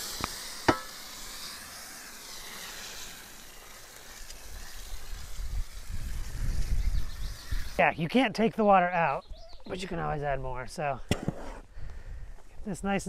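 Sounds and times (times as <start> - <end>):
hose spraying water on soil: 0.0 - 9.2.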